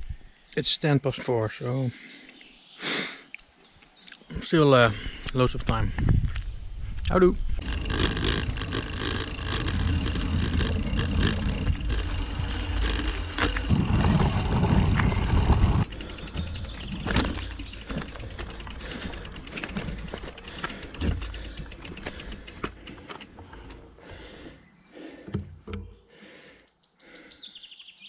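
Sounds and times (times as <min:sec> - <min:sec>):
bike rattling: 0:07.4 - 0:24.3
bike tyres rumbling on paving: 0:07.5 - 0:24.4
tyres rolling on dirt track: 0:07.6 - 0:24.0.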